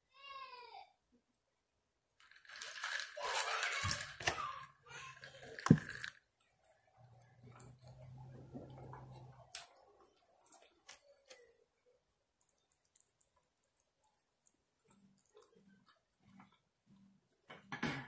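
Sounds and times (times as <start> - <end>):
wet chewing and mouth smacking: 12.3 - 17.1.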